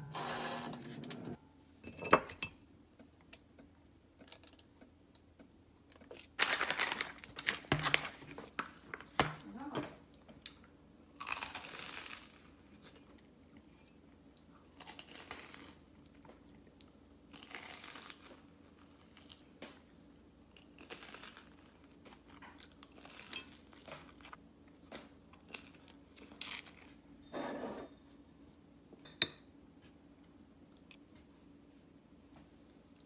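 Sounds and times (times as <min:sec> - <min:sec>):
crunchy biting and chewing: 0:20.5 - 0:24.3.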